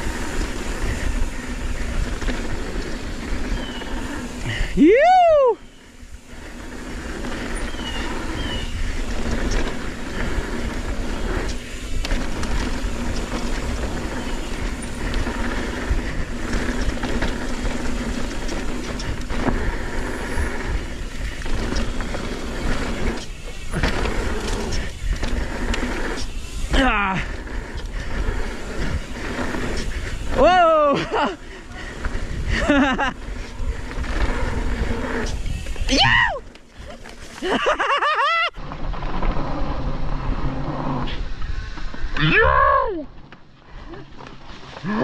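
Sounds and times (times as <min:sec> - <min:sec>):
wind noise: 0:00.0 - 0:37.8
bike tyre rumble: 0:00.0 - 0:45.0
person whooping: 0:04.5 - 0:05.6, 0:30.4 - 0:31.4, 0:35.9 - 0:36.5.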